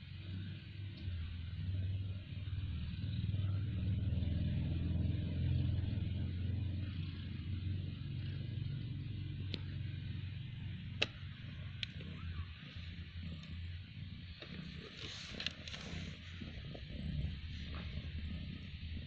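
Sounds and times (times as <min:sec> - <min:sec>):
cat purring: 0:00.0 - 0:19.0
sharp clicks: 0:11.0 - 0:12.3.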